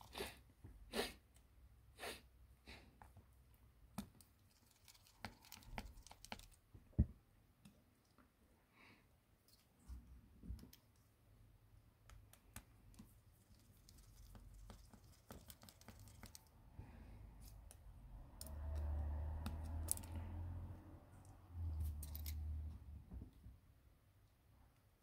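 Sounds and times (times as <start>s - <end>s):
small tools clicking on phone: 17.5s - 20.2s.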